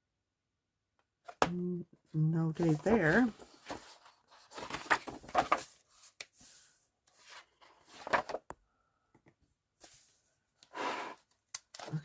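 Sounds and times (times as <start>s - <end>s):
book pages rustling: 2.6s - 8.5s.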